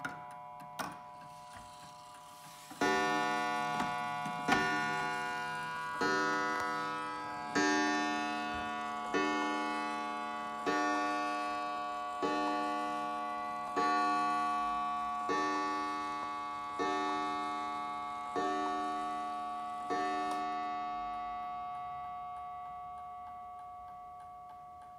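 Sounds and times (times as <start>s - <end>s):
clock gong striking: 2.6s - 24.6s.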